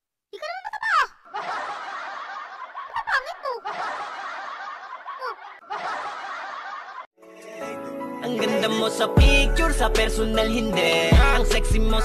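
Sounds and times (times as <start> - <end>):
crowd laughing: 1.2 - 7.1.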